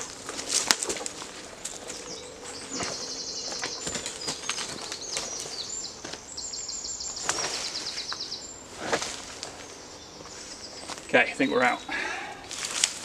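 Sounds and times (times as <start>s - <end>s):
twigs cracking: 0.0s - 6.2s, 7.2s - 8.2s, 12.5s - 13.0s
leaves rustling: 0.0s - 11.2s, 11.9s - 13.0s
songbird trilling: 1.9s - 8.7s.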